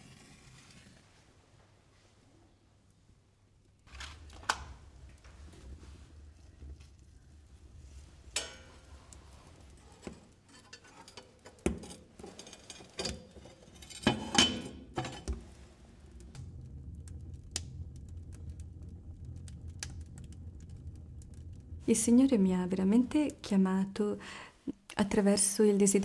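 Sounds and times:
burning wood ticking: 3.9s - 14.0s, 15.4s - 22.1s
stove door and poker clanking: 8.4s - 8.9s, 9.8s - 15.4s.

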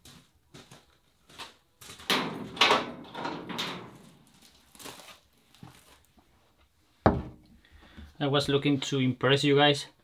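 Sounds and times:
metal shed door opening: 2.0s - 4.2s.

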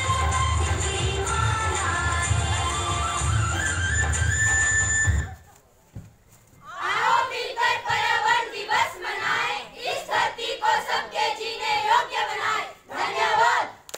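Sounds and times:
children singing in unison: 6.7s - 13.7s.

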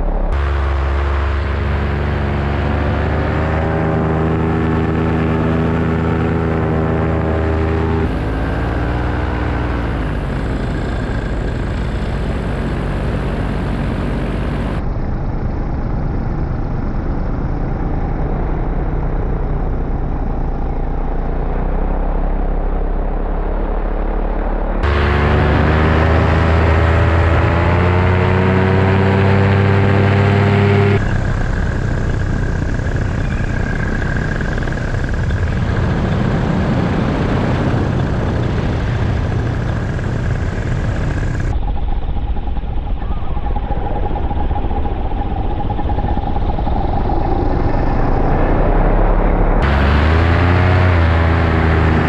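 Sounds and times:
paramotor engine and propeller: 0.0s - 52.0s
steady high whine: 0.0s - 52.0s
wind rushing over microphone: 23.3s - 52.0s.

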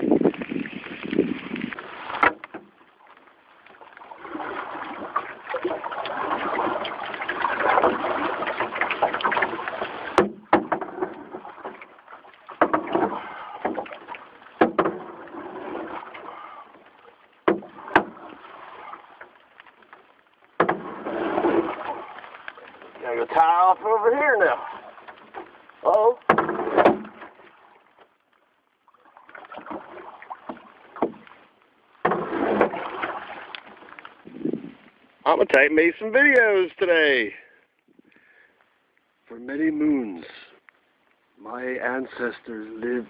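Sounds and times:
sharp knocks and bumps: 2.2s - 2.7s, 5.6s - 11.9s, 12.5s - 16.0s, 17.4s - 18.3s, 20.6s - 22.0s, 26.2s - 27.4s, 29.6s - 31.3s, 32.0s - 33.3s.

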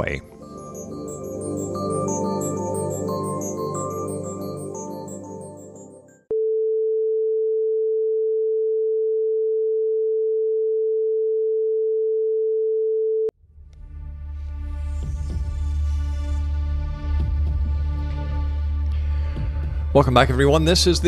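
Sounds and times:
music: 0.0s - 6.3s, 13.4s - 21.0s.

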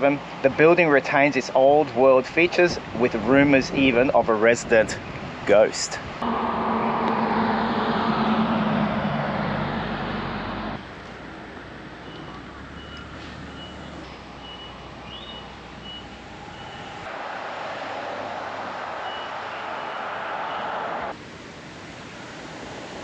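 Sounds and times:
vehicle engine running: 6.2s - 11.2s.

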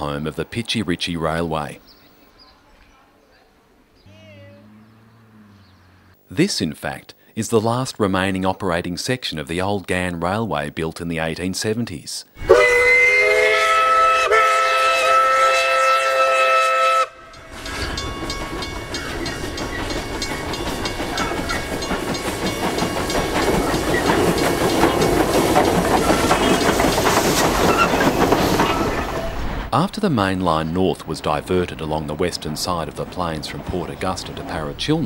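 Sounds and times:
steam locomotive whistle: 12.4s - 18.1s
steam train running past: 12.4s - 35.0s
wheels clicking over rail joints: 17.3s - 29.7s.

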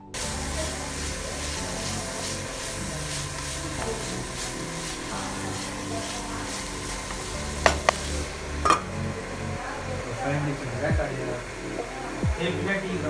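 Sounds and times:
wooden spatula stirring: 0.2s - 9.4s
crabs sizzling in a pan: 0.2s - 13.0s.

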